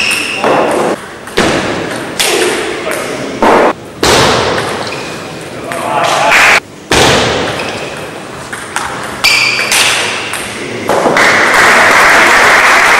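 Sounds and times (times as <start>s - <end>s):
audience applause: 11.2s - 12.9s.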